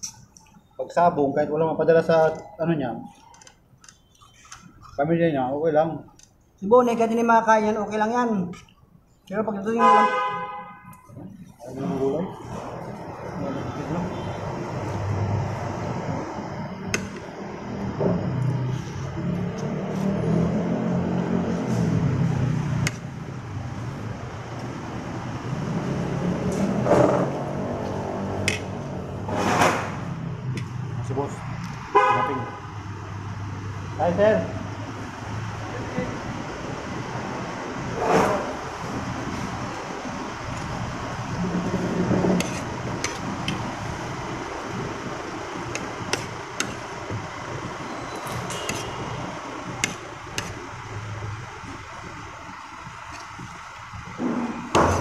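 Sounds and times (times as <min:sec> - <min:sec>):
steady background hum: 0:21.2 - 0:55.0.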